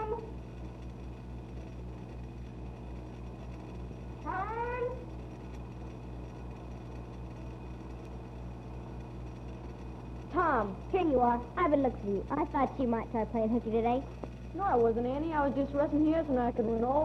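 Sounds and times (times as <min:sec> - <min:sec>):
steady low hum: 0:00.0 - 0:17.0
woman calling out: 0:04.3 - 0:05.0.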